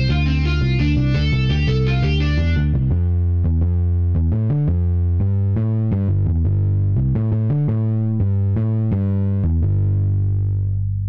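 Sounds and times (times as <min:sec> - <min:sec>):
distorted electric guitar riff: 0:00.0 - 0:03.1
heavy bass line: 0:00.0 - 0:11.0.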